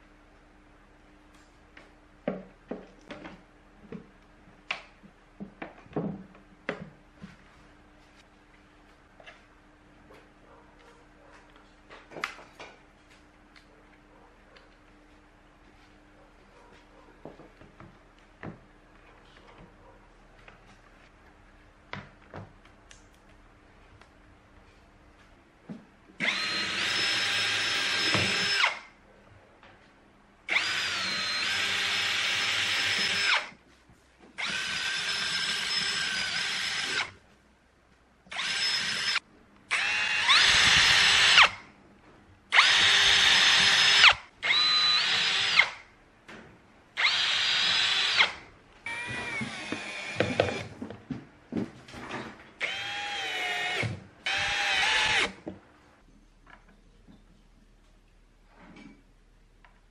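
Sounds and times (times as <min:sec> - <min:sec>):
cordless drill whining: 0:26.2 - 0:28.9, 0:30.5 - 0:33.6, 0:34.4 - 0:37.1, 0:38.3 - 0:41.6, 0:42.5 - 0:45.8, 0:47.0 - 0:50.7, 0:52.6 - 0:55.4.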